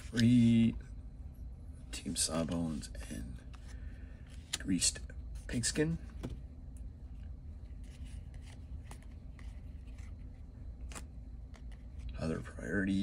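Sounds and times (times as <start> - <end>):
low steady hum: 0.0 - 13.0
cards being flipped through: 7.7 - 12.2.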